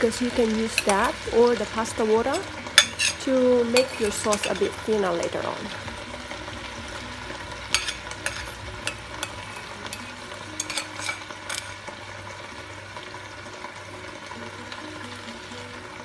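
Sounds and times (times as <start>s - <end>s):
food sizzling in a frying pan: 0.0s - 16.0s
metal ladle clinking on bowl: 2.8s - 4.8s, 7.7s - 11.7s.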